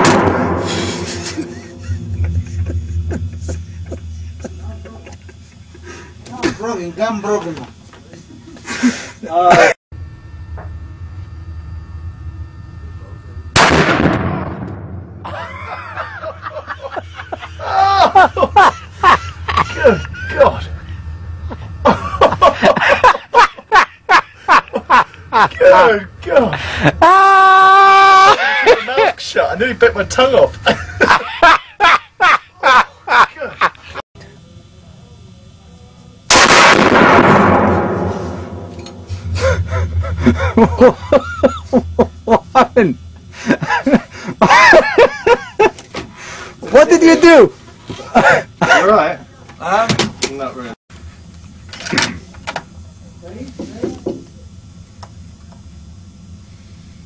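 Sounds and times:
man laughing: 0.7 - 6.8, 8.1 - 9.8, 15.2 - 34.0, 39.2 - 45.9, 48.0 - 49.2
rifle shot echoing: 13.6 - 15.2, 36.3 - 38.7.

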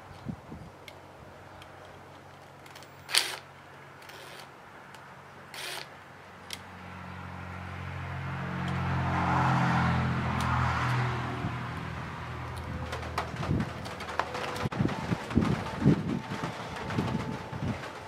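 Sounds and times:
cordless drill spinning: 2.6 - 3.4, 4.0 - 4.5, 5.5 - 5.9.

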